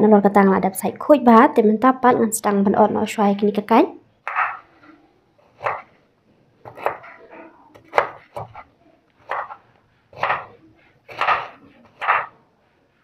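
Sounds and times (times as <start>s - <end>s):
knife chopping on cutting board: 4.2s - 4.7s, 5.5s - 6.0s, 6.6s - 7.2s, 7.8s - 12.4s.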